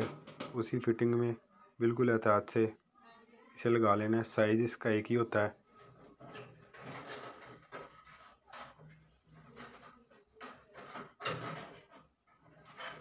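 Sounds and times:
rustling and scraping: 5.6 - 13.0.

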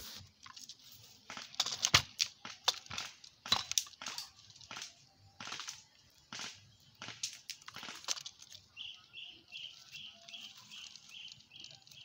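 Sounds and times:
leaves rustling and crackling: 7.4 - 12.0.

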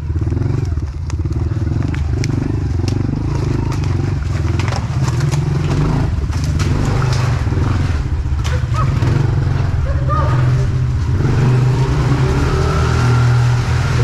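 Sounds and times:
motorbike engine running: 0.0 - 14.0.

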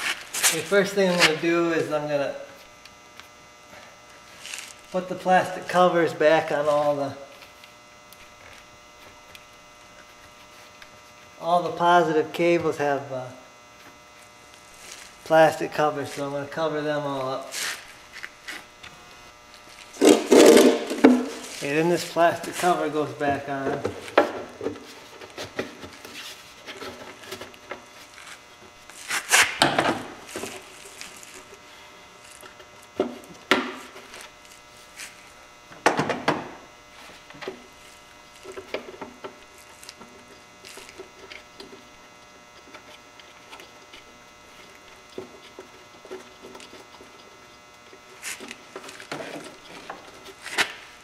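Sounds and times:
plastic covers knocking and scraping: 19.9 - 21.7, 48.3 - 50.8.

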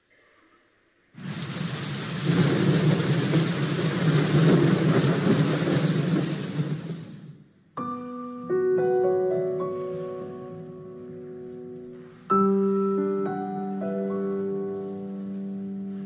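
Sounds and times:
audience applauding: 1.2 - 7.2
piano music: 7.8 - 16.0.

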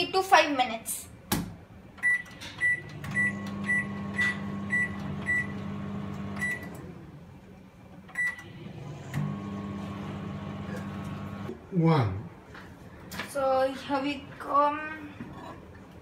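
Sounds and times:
microwave running hum: 2.6 - 7.2, 8.2 - 11.5.

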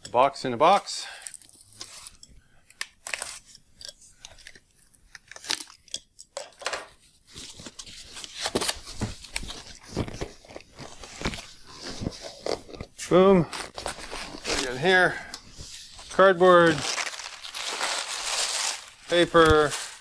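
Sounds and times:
cardboard box being opened: 16.8 - 20.0.

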